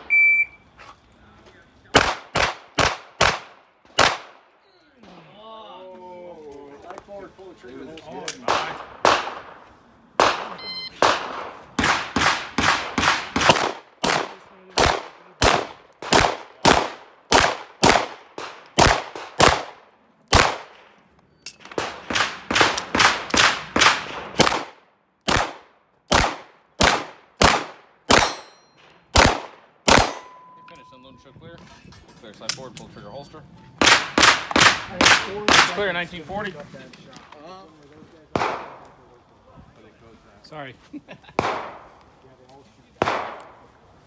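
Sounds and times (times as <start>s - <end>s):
pistol shots: 1.9s - 4.4s, 8.2s - 9.6s, 10.2s - 20.9s, 21.6s - 30.3s, 33.8s - 35.9s, 38.3s - 38.9s, 41.4s - 41.9s, 43.0s - 43.6s.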